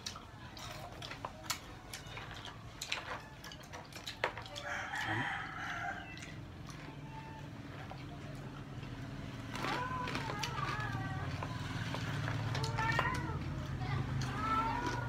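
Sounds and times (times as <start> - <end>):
people eating crispy chicken: 0.0 - 15.0
rooster crowing: 4.6 - 6.4.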